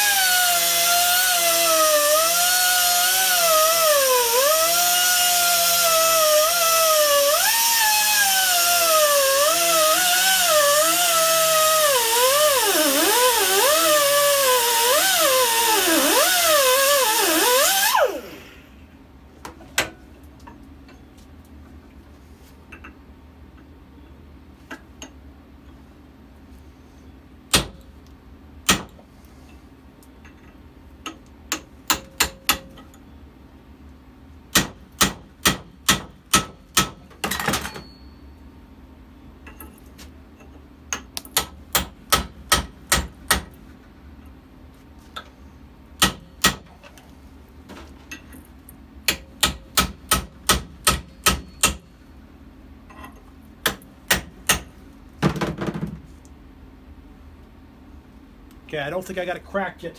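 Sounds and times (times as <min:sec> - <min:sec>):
hammer striking chisel on metal: 0:31.5 - 0:32.8, 0:34.5 - 0:37.0, 0:40.9 - 0:43.5, 0:46.0 - 0:46.7, 0:49.1 - 0:51.9, 0:53.6 - 0:54.7.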